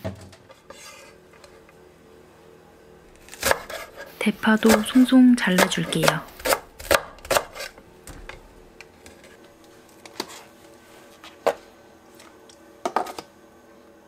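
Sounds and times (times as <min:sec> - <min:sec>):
knife chopping on wooden board: 0:03.3 - 0:04.0, 0:04.6 - 0:07.7.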